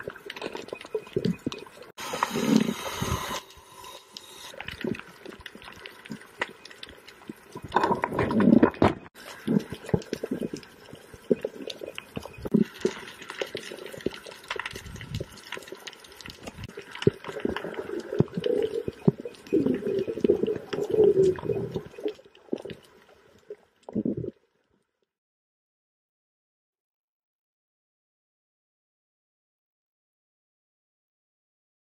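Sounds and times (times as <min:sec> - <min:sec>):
water gurgling underwater: 0:07.6 - 0:15.4, 0:16.4 - 0:22.8.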